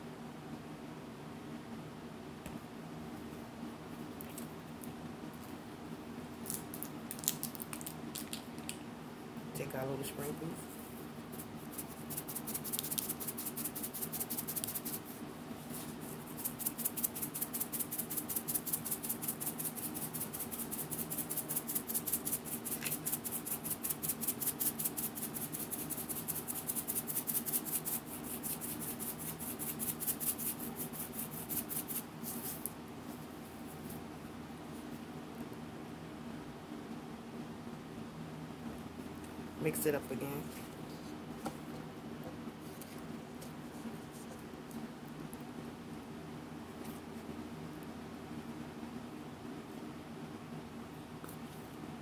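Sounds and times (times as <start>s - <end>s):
sprinkles rattling in shaker bottle: 11.4s - 15.0s, 16.2s - 32.1s.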